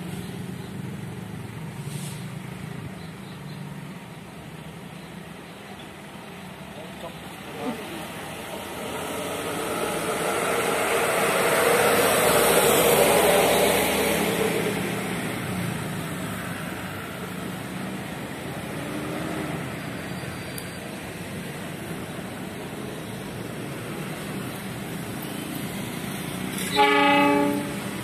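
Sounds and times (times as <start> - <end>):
locomotive engine passing: 6.0 - 28.0.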